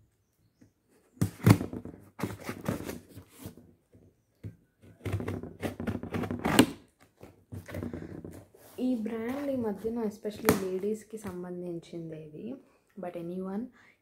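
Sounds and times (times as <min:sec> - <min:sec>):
cardboard rustling: 0:01.2 - 0:03.7.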